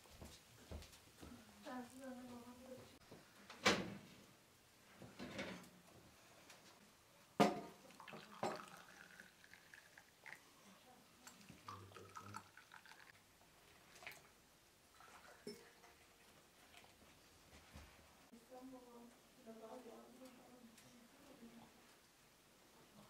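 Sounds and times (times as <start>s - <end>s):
metal teapots clinking: 7.4s - 9.2s, 15.0s - 16.0s
tea pouring into glass: 7.8s - 10.5s, 11.2s - 13.2s, 14.9s - 16.0s.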